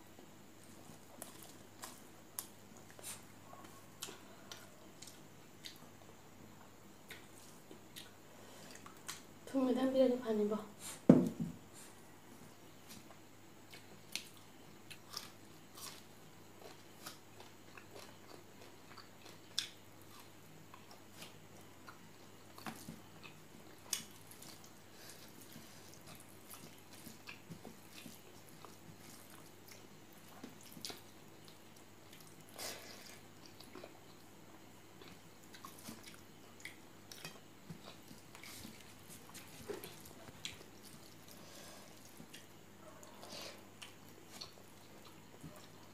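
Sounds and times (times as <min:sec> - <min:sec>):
person chewing: 0:00.6 - 0:06.1, 0:07.0 - 0:09.2, 0:12.8 - 0:45.9.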